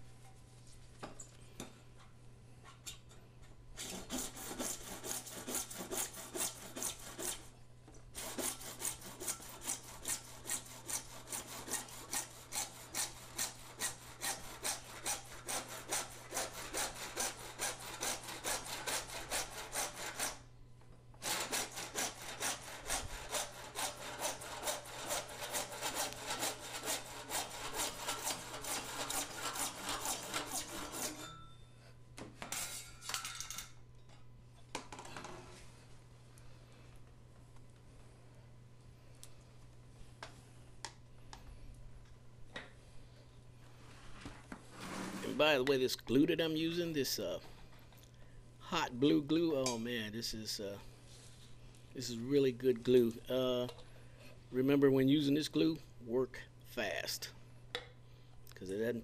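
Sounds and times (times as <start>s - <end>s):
hand saw cutting plastic pipe: 3.8s - 7.5s, 8.1s - 20.4s, 21.2s - 31.3s.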